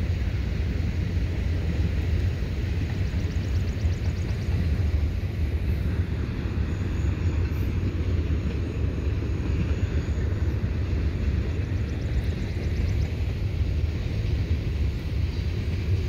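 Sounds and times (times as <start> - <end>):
distant freight train rumble: 0.0 - 16.0.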